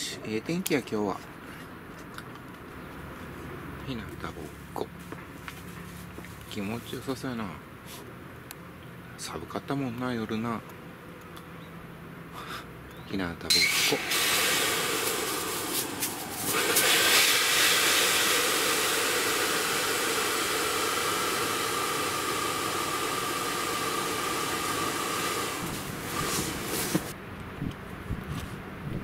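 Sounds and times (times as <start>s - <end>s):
air hissing from air bed valve: 13.5s - 27.1s.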